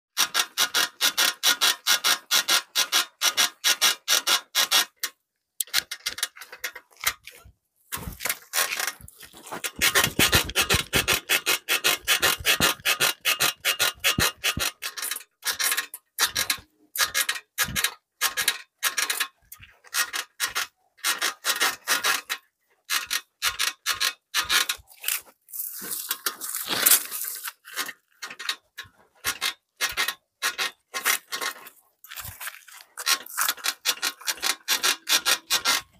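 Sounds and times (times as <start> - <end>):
bicycle freewheel ratchet clicking: 9.8 - 19.3.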